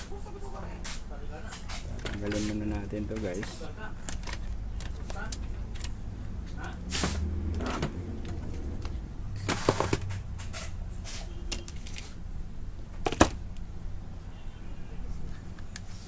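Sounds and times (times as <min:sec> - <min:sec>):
printer parts clicking and knocking: 0:01.5 - 0:06.0, 0:13.0 - 0:13.4.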